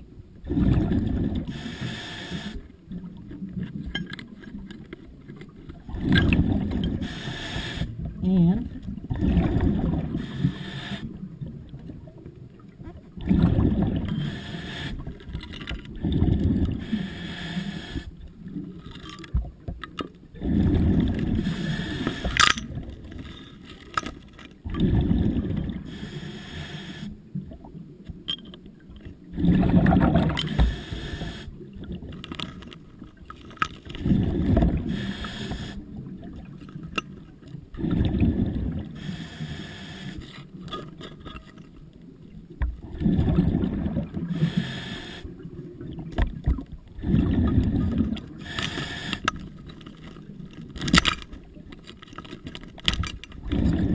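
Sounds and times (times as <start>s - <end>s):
underwater breathing bubbles: 0.4s - 3.5s, 5.9s - 12.0s, 13.2s - 18.7s, 20.3s - 27.6s, 29.2s - 32.8s, 33.6s - 37.0s, 37.7s - 41.6s, 42.8s - 51.2s, 53.3s - 53.9s.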